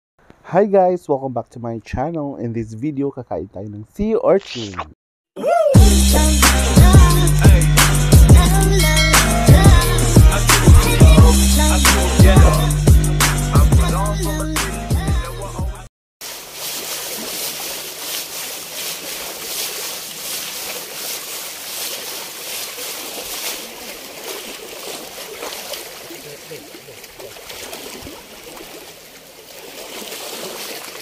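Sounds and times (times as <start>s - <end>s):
seawater sloshing over rocks: 16.2s - 31.0s
splashes of people wading: 16.2s - 31.0s.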